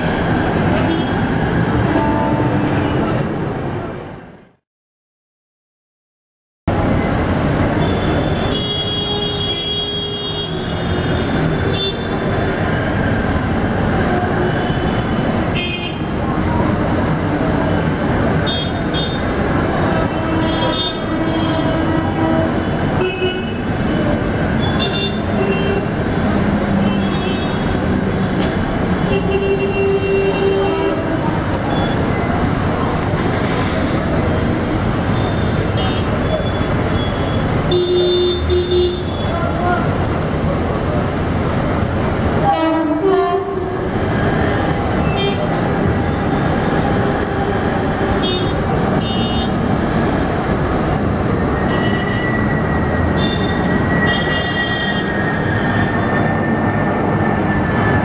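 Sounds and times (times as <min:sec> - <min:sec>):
loud traffic din: 0:00.0 - 0:04.6, 0:06.7 - 0:58.0
voices: 0:39.2 - 0:41.2.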